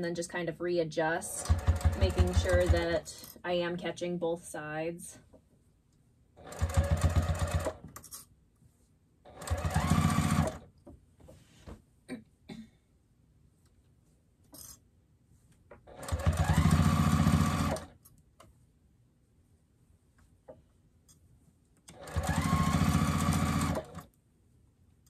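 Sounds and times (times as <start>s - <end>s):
sewing machine stitching: 1.3s - 3.2s, 6.4s - 8.0s, 9.3s - 10.7s, 15.9s - 18.0s, 21.9s - 24.1s.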